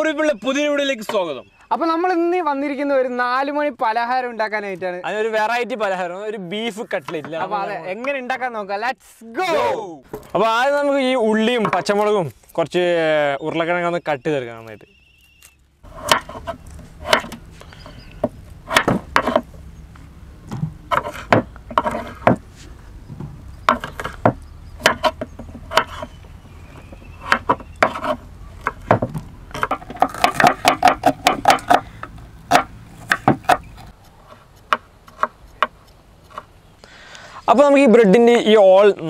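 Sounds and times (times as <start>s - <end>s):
knife chopping on cutting board: 15.9s - 17.4s, 18.2s - 19.5s, 20.9s - 22.4s, 23.7s - 26.1s, 27.2s - 31.8s.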